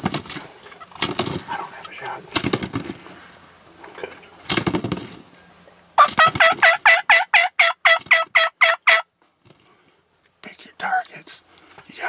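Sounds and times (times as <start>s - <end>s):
turkey yelping: 0.7s - 2.0s, 6.0s - 9.1s.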